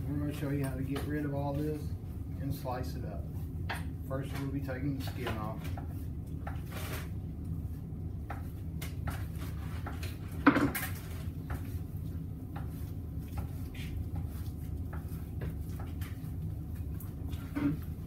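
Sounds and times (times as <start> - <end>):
knife tapping and scraping: 3.6 - 6.8, 8.2 - 10.8, 12.5 - 16.3.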